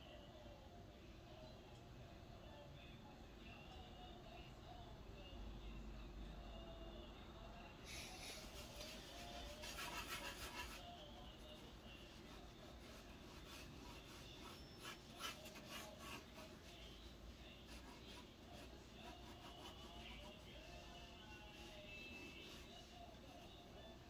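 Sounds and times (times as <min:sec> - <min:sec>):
drawing tool scratching: 0:08.4 - 0:11.1, 0:12.2 - 0:17.0, 0:17.6 - 0:23.6.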